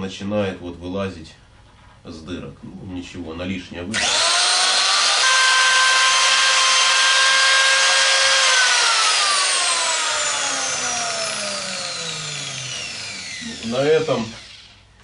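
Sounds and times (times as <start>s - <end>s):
angle grinder spinning down: 3.9s - 14.8s.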